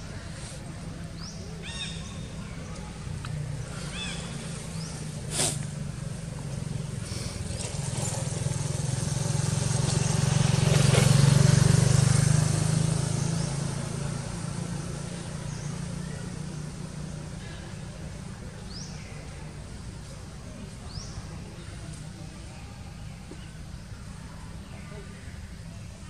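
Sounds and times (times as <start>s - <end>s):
vehicle engine passing by: 2.2s - 20.1s.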